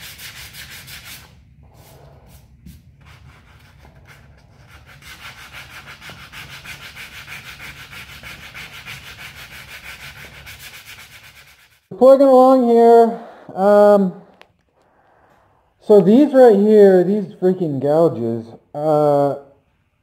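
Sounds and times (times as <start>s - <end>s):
hand sanding strokes: 0.0s - 11.9s.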